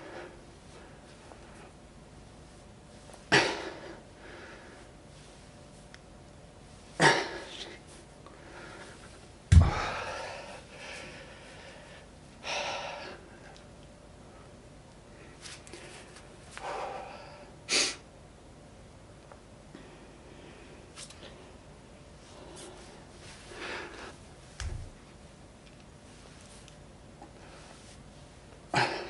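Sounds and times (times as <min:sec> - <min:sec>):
heavy thud: 0:09.5 - 0:10.0
man exhaling forcefully: 0:09.5 - 0:10.5.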